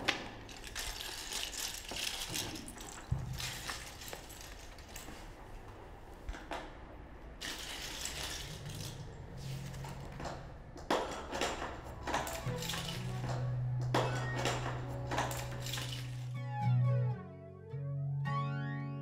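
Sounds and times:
toy pieces clicking and rattling: 0.5 - 5.0, 7.4 - 9.1, 12.0 - 13.2.

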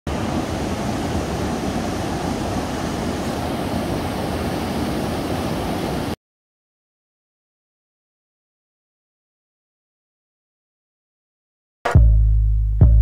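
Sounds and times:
whitewater rushing roar: 0.1 - 6.2.

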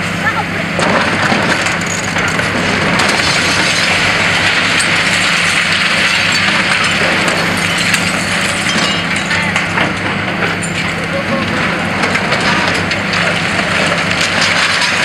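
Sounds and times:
diesel engine running: 0.0 - 15.0
concrete crushing and debris falling: 0.8 - 15.0
glass breaking clinks: 6.0 - 9.6.

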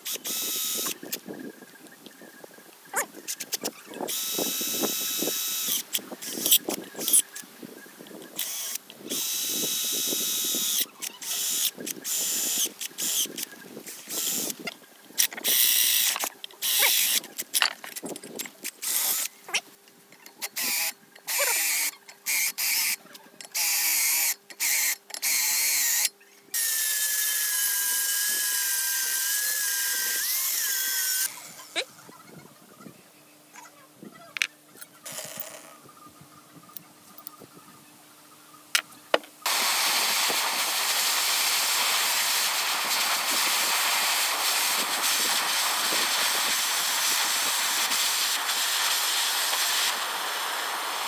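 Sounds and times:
cordless drill cutting steel plate: 0.0 - 1.2, 3.3 - 7.4, 8.3 - 14.6, 15.2 - 17.2, 18.8 - 19.3, 20.4 - 23.0, 23.6 - 31.8, 39.5 - 51.0.

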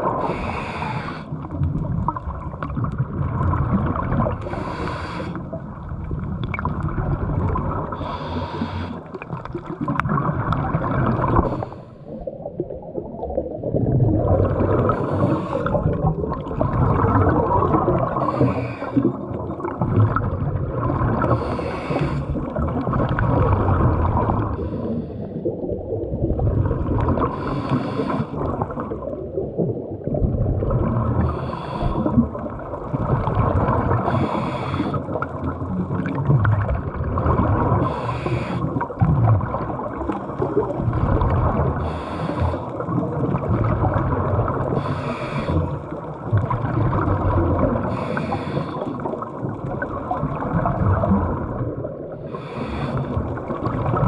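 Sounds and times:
diver breathing underwater: 0.0 - 1.7, 3.8 - 5.9, 7.3 - 12.4, 14.0 - 25.6, 27.0 - 29.2, 30.9 - 36.2, 37.0 - 46.2, 46.9 - 49.9, 51.9 - 54.0.

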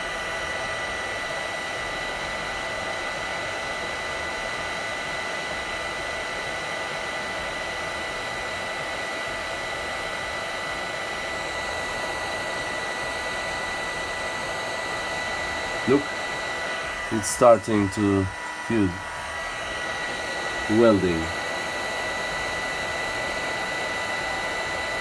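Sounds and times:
heat gun blowing air: 8.8 - 25.0.

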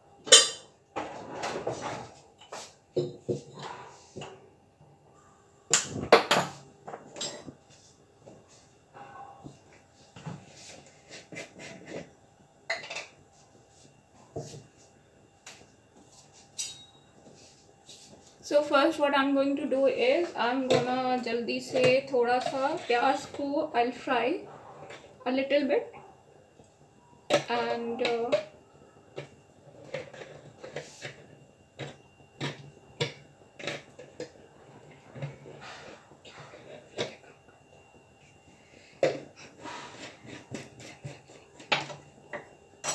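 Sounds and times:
kitchen utensils and dishes clinking: 0.3 - 4.0, 16.6 - 17.0, 21.6 - 23.4.

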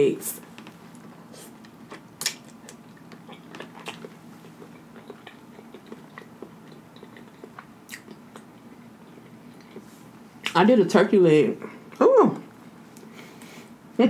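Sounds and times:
person chewing food: 0.4 - 10.6.

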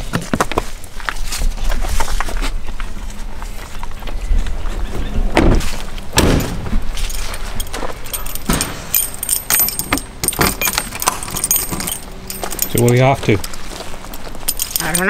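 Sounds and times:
dull thuds: 5.2 - 6.9
keys jangling in lock: 7.0 - 15.0.

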